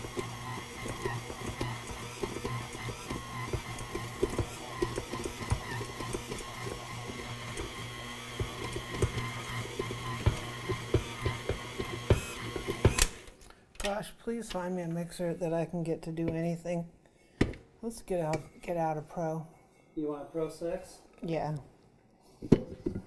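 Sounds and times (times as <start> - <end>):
stand mixer motor hum and whine: 0.0 - 13.2.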